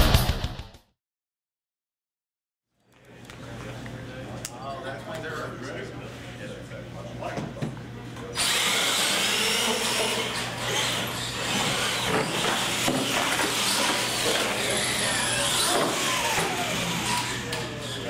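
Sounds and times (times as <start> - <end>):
electric motors whining: 8.4 - 18.0.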